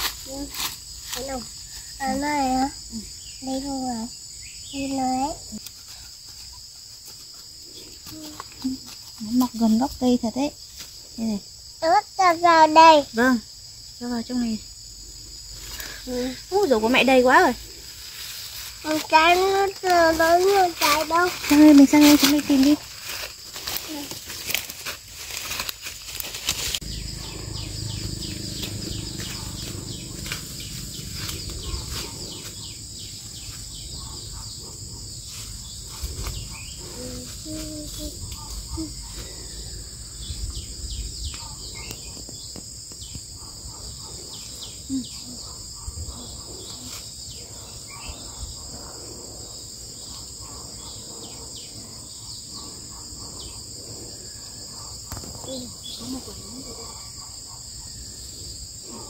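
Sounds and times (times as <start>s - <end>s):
high-pitched insect chorus: 0.0s - 59.0s
footsteps through leaf litter: 17.9s - 27.0s.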